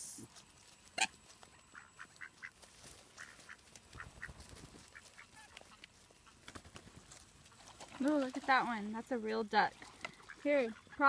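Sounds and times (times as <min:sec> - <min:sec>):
coots calling: 0:00.8 - 0:07.8, 0:09.9 - 0:11.0.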